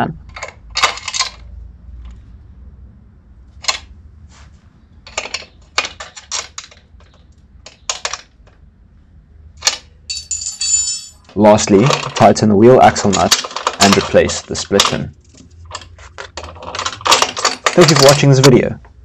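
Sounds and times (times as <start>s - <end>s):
ringing metallic clink: 10.1s - 11.2s.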